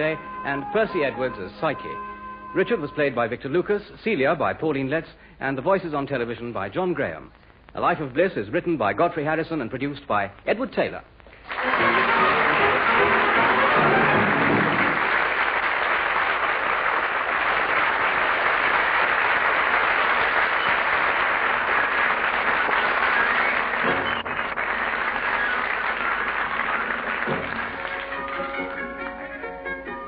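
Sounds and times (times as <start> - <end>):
audience applauding: 11.4 - 29.7.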